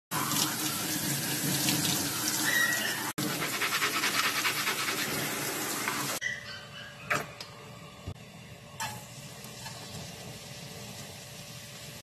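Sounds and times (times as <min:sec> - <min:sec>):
tap water running and splashing: 0:00.1 - 0:06.2, 0:09.4 - 0:12.0.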